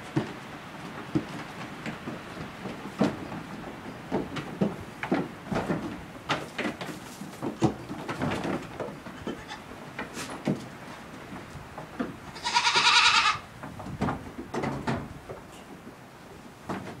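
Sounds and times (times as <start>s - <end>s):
goat kid bleating: 9.2s - 9.7s, 12.3s - 13.5s.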